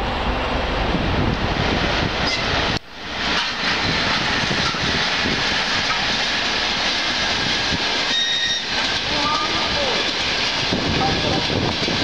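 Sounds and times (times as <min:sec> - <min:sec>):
train wheels roaring on rails: 0:00.0 - 0:12.0
high-pitched wheel squeal: 0:08.1 - 0:09.5.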